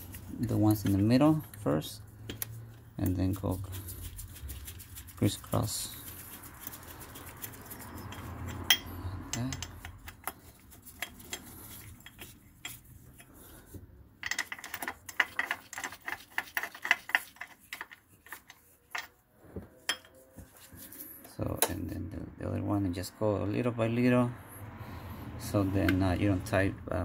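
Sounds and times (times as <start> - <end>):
metal tools clicking and clinking: 7.9 - 12.9, 14.2 - 19.2.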